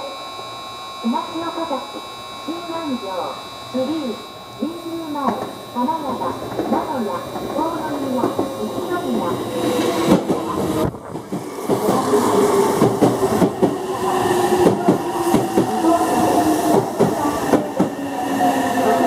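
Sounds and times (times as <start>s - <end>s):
steady electric whine: 0.0s - 19.0s
train wheels clacking over rail joints: 9.8s - 13.8s.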